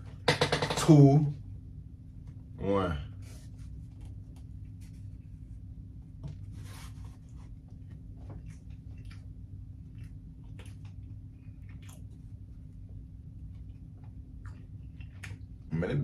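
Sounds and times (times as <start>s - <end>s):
low hum: 0.0s - 16.0s
person chewing: 8.2s - 12.7s, 13.5s - 15.7s.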